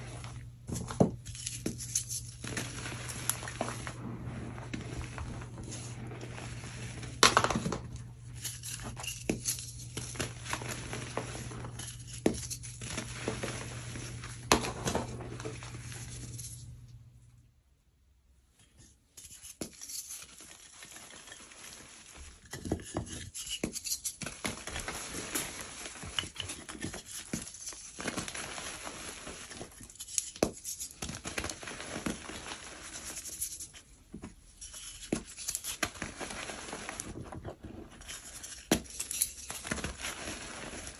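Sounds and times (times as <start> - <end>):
low steady hum: 0.0 - 18.8.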